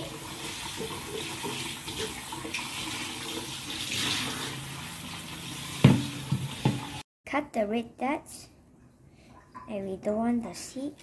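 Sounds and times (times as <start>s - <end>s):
tap water running into sink: 0.0s - 7.0s.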